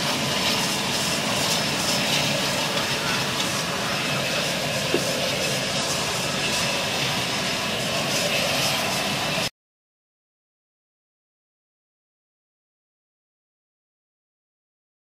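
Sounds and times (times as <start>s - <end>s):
turboprop idling: 0.0s - 9.5s.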